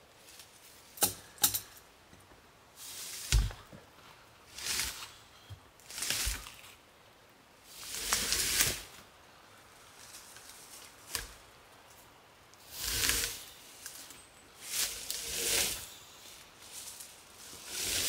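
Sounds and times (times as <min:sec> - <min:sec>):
log scraping through leaves: 0:02.8 - 0:03.6, 0:04.5 - 0:05.2, 0:05.8 - 0:06.8, 0:07.7 - 0:09.0, 0:12.6 - 0:18.0.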